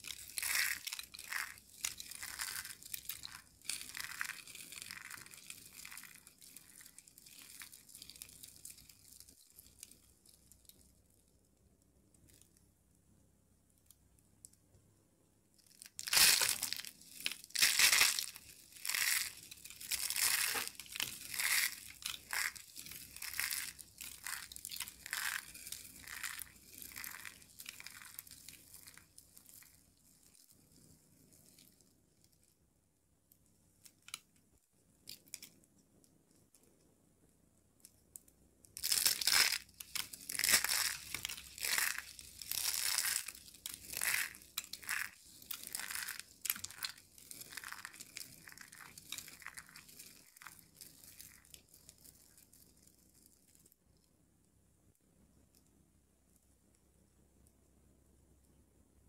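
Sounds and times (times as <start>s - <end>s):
soap curls crunching: 0.0s - 10.8s, 15.7s - 30.4s, 38.8s - 53.4s.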